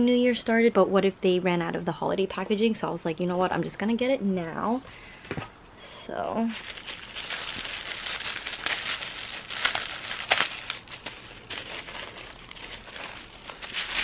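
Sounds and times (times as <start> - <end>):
tissue paper crinkling: 6.5 - 14.0.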